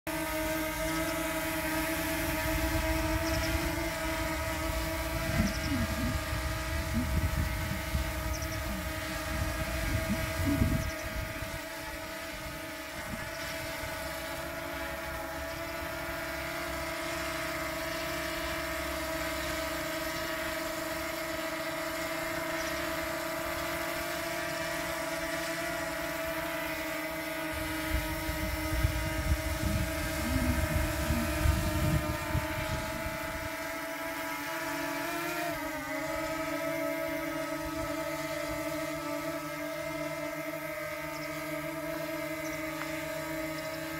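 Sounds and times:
drone propellers buzzing: 0.1 - 43.9
gusty low rumble: 28.3 - 33.4.

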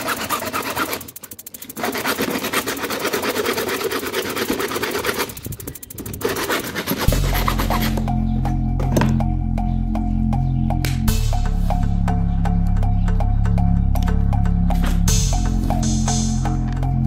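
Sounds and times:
hacksaw sawing through plastic: 0.0 - 8.1
background music: 7.0 - 17.0.

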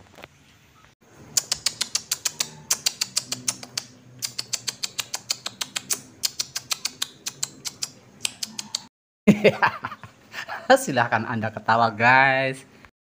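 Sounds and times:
rapid keyboard typing clicks: 1.4 - 8.9.

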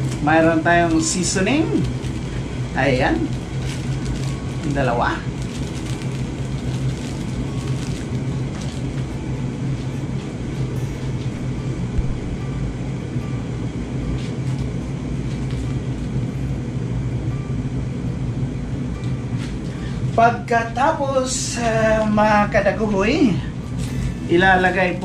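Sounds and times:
electric kettle heating water: 0.0 - 25.0.

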